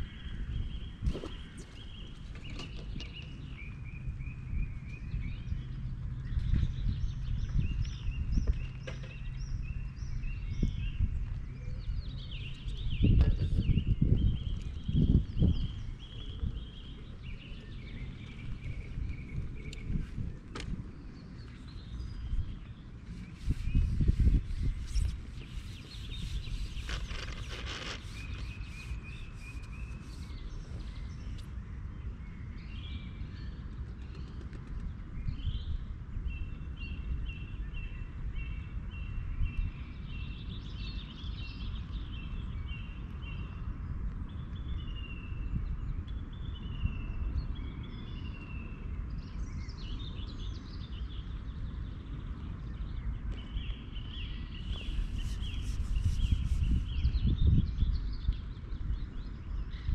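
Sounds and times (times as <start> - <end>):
small birds chirping: 0.0 - 59.9
steady low rumble: 3.0 - 33.9
bird gliding calls: 23.1 - 30.4.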